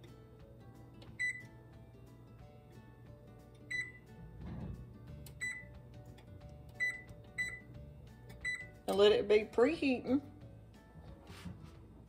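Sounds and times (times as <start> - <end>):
soft background music: 0.0 - 12.0
oven keypad beeps: 1.1 - 1.5, 3.7 - 4.1, 5.3 - 5.8, 6.7 - 8.8.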